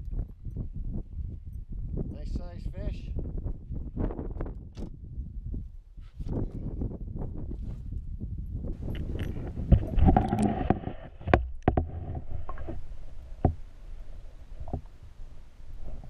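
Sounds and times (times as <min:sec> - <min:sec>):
underwater water sloshing: 0:09.7 - 0:16.0.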